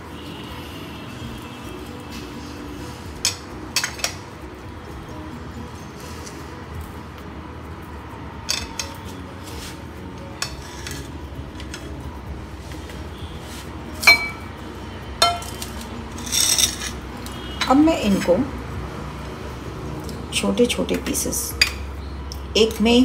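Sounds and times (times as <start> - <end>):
kitchenware clinking and knocking: 3.3 - 4.2, 14.0 - 14.5, 15.2 - 15.6.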